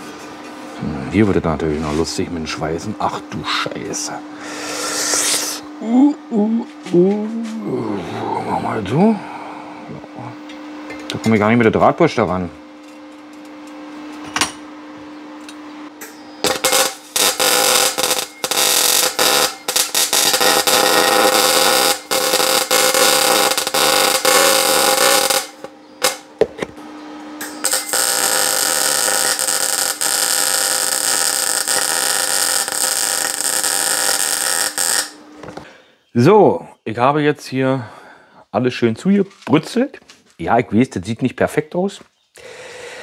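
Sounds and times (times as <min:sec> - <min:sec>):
steady hum: 0:00.0 - 0:39.1
arc welding crackling and buzzing: 0:10.2 - 0:35.6.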